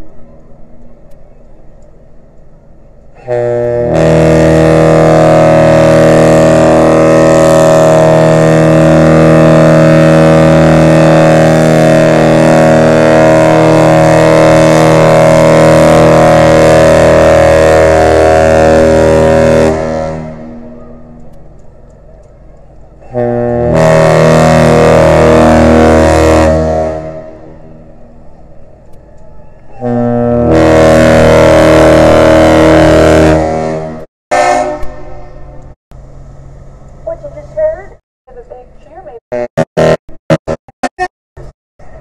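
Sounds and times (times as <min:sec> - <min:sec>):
deep ship's horn blast: 0:03.2 - 0:21.2, 0:23.0 - 0:28.4, 0:29.7 - 0:35.4, 0:39.3 - 0:40.6.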